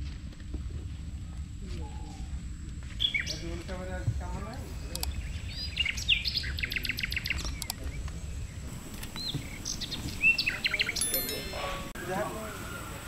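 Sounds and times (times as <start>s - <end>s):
small birds chirping: 1.7s - 13.0s.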